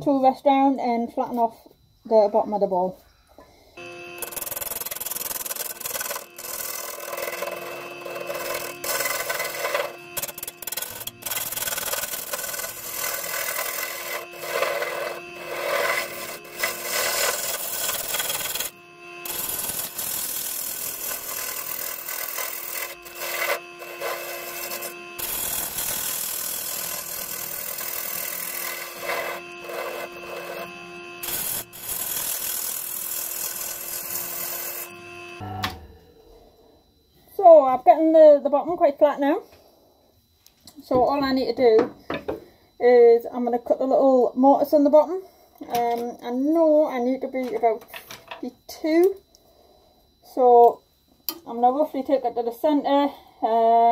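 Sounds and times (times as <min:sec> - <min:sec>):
lathe tool scraping wood: 0:03.8 - 0:35.4
steady ringing tone: 0:03.8 - 0:38.8.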